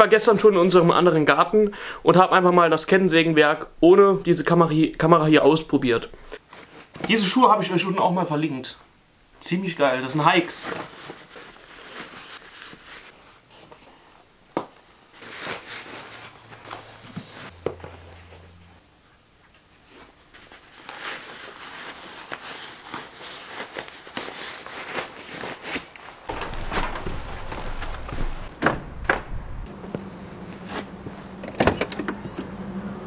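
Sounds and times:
leather boot rustling and creaking: 25.6 - 31.1
low rumble: 26.3 - 30.2.

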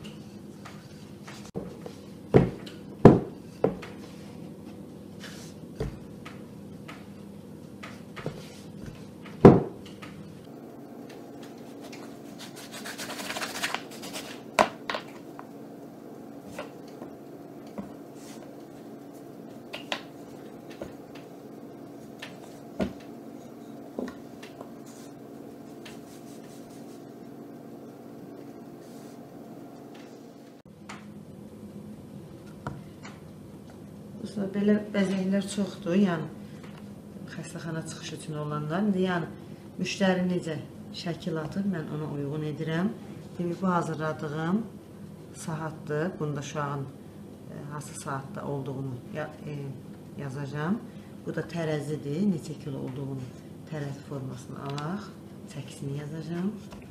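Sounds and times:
faint steady hum: 0.0 - 56.9
rolling pin knocking on board: 2.3 - 3.9, 9.3 - 9.8
sugar paste rustling: 11.8 - 14.5.

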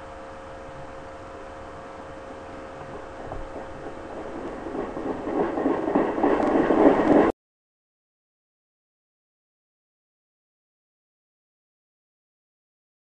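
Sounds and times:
train approaching: 0.0 - 7.3.

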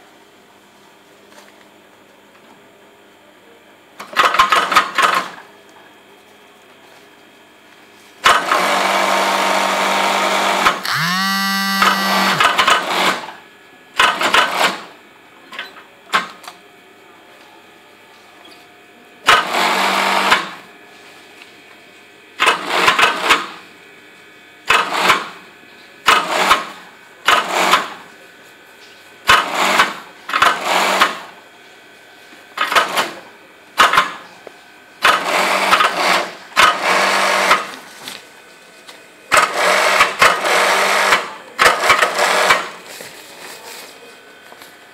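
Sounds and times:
sewing machine stitching: 8.3 - 13.3, 39.4 - 42.7.

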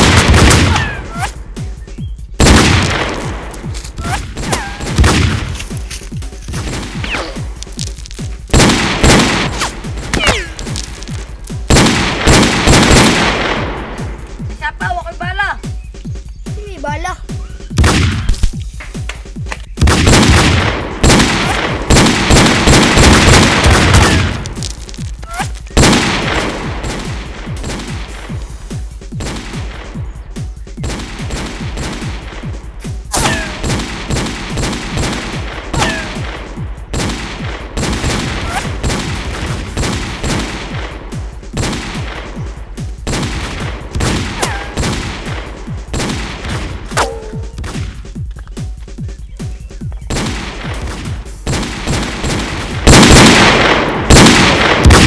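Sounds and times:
rapid gunfire: 0.0 - 1.0, 2.4 - 5.6, 8.5 - 14.1, 19.8 - 24.6, 25.8 - 28.4, 30.8 - 46.9, 50.1 - 55.0.

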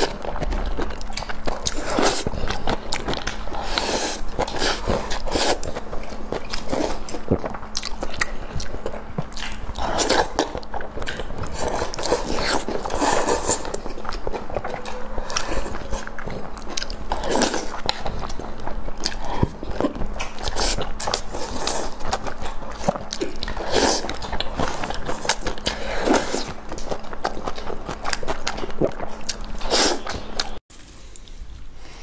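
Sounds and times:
wet chewing and lip smacking: 0.0 - 30.6
slurping food: 3.5 - 5.8, 11.4 - 14.1, 29.6 - 30.5.

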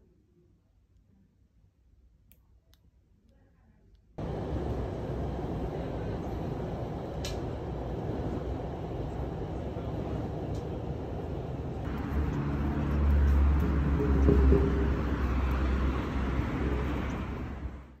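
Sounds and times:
street traffic: 4.2 - 18.0
subway train rumbling: 4.2 - 18.0
vehicle engine passing close: 4.2 - 18.0.

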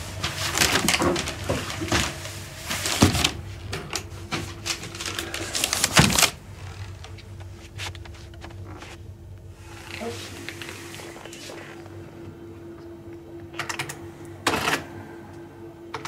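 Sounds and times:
parcels clattering on conveyor: 0.0 - 8.9
conveyor humming: 0.0 - 16.0
heavy parcel thumps: 4.2 - 6.9.

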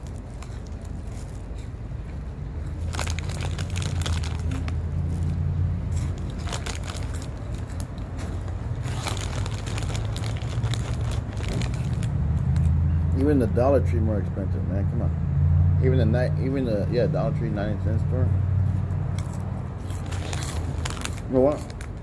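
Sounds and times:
crunchy chewing: 0.0 - 12.8, 19.1 - 22.0
snack bag crinkling: 2.8 - 5.4, 6.0 - 12.8, 19.8 - 22.0.

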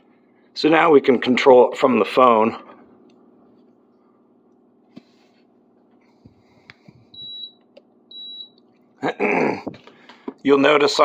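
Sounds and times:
air conditioner short high beeps: 7.1 - 8.6.

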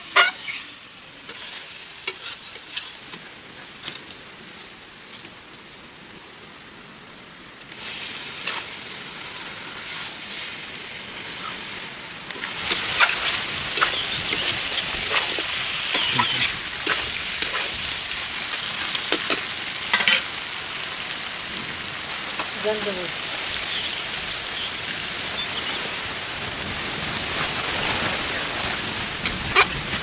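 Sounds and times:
metal spatula scraping a pan: 0.0 - 3.0, 12.4 - 17.8, 29.3 - 29.9
food sizzling in a pan: 0.0 - 4.5, 7.7 - 30.0.

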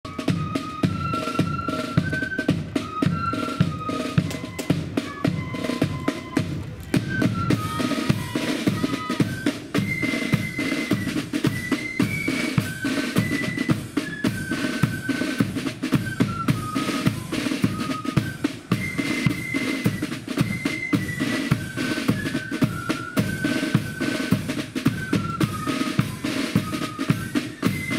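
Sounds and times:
flutes playing high melody: 0.0 - 27.9
snare drums: 0.0 - 27.9.

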